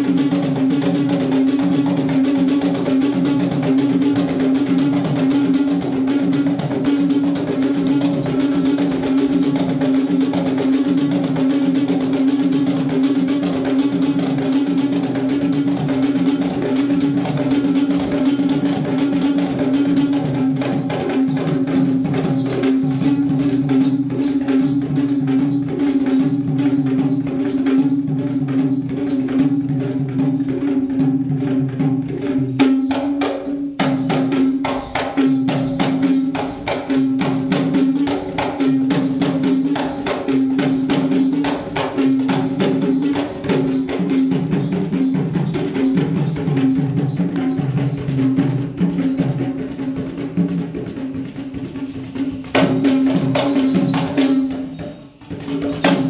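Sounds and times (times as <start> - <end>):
fast dense drumming: 0.0 - 56.0
jingling percussion: 0.0 - 56.0.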